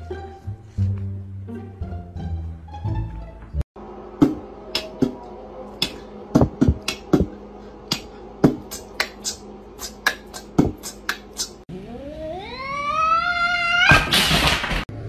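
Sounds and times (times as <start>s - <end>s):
cat meowing rising in pitch: 11.9s - 14.1s.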